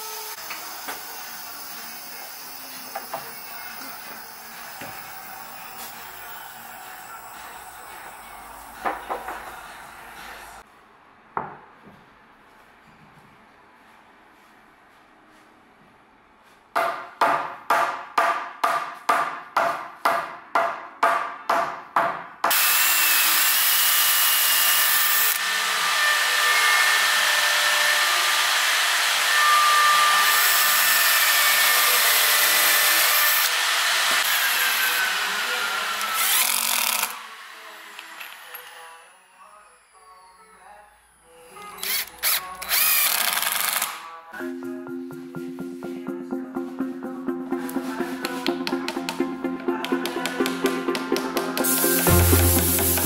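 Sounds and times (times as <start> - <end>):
power drill boring into wood: 22.5 - 38.9, 41.8 - 44.0.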